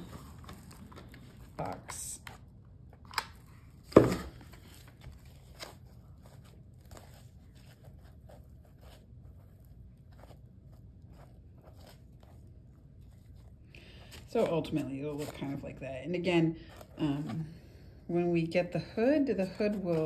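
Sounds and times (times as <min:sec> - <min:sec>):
fur and cardboard rustling: 0:03.9 - 0:13.6.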